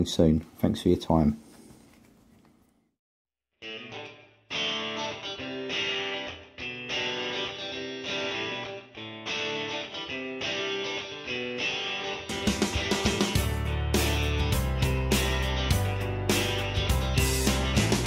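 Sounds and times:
guitar chords strummed: 3.6 - 18.0.

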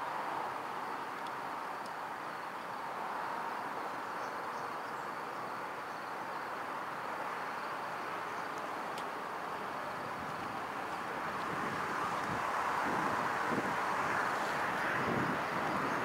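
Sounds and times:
distant train rumble: 7.8 - 16.0.

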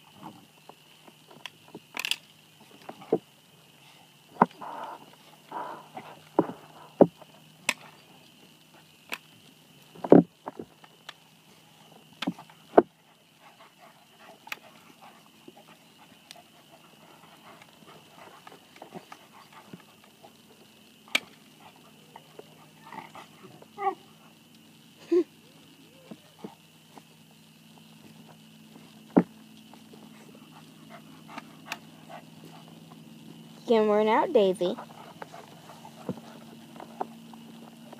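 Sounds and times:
dogs play-fighting scuffling: 12.2 - 24.4, 26.1 - 33.7, 34.6 - 37.9.

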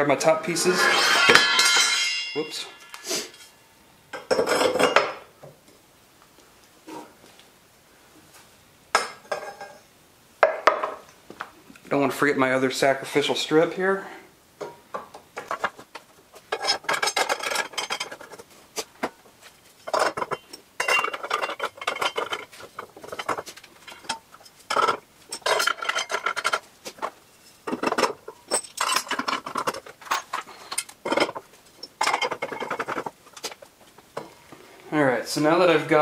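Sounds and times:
metal hardware clinking and scraping: 0.4 - 5.2, 9.0 - 9.8, 16.4 - 34.3.

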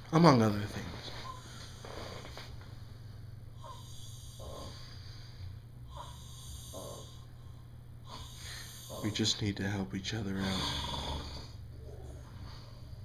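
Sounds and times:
low hum: 0.0 - 13.0
man breathing slowly: 1.2 - 9.1.

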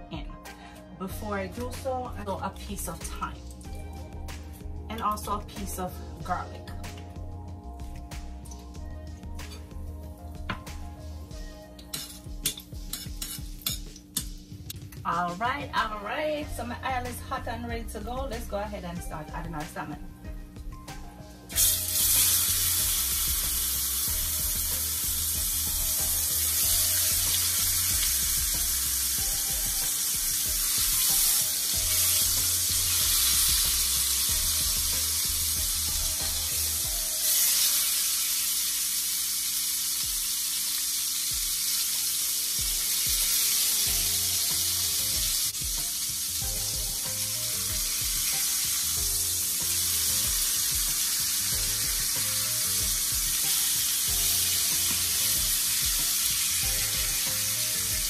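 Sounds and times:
fish sizzling in hot oil: 21.5 - 58.0.

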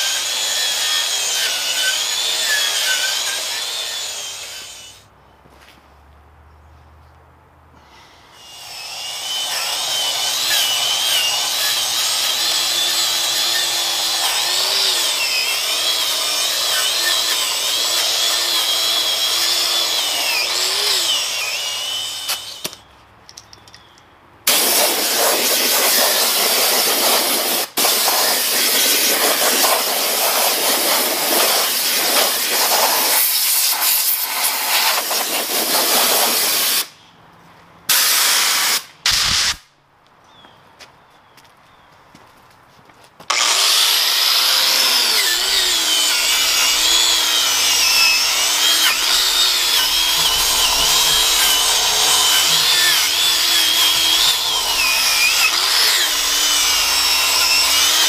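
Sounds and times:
wire wheel grinder scrubbing metal: 0.0 - 5.0, 8.4 - 22.7, 24.5 - 36.8, 43.3 - 58.0
air blow gun hissing: 7.9 - 22.6, 24.5 - 37.0, 37.9 - 39.6, 43.8 - 58.0.

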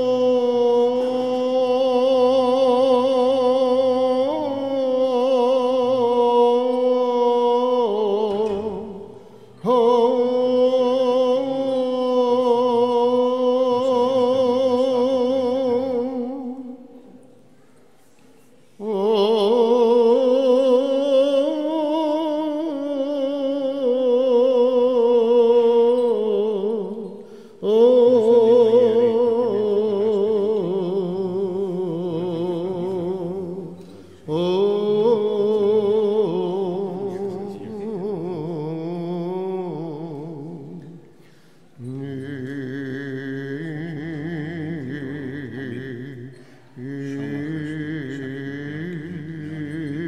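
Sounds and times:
person chanting: 0.0 - 17.5, 18.7 - 41.1, 41.8 - 50.0
low vocal drone: 41.8 - 50.0.

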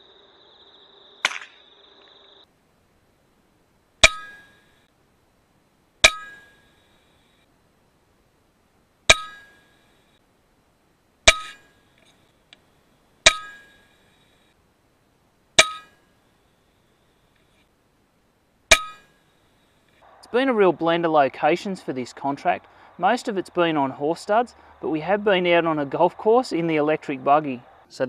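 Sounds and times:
air rifle shots with metallic ring: 15.6 - 16.0.

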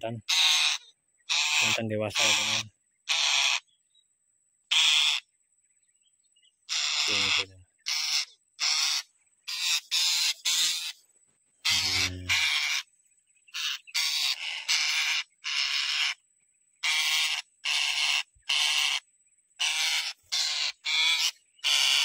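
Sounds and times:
parakeets squawking: 0.2 - 3.7, 4.7 - 5.2, 6.7 - 11.0, 11.6 - 12.9, 13.5 - 16.2, 16.8 - 19.0, 19.6 - 22.0.

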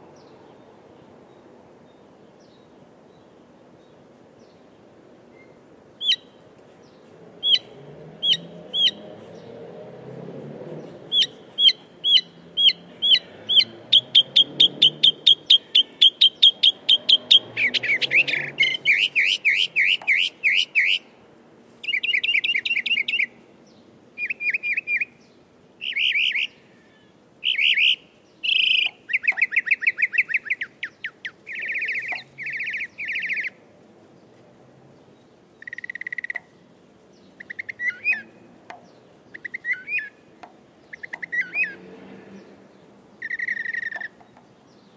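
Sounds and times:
mockingbird singing: 5.3 - 9.6, 10.8 - 21.1, 21.8 - 33.6, 35.2 - 41.8, 42.4 - 44.9.

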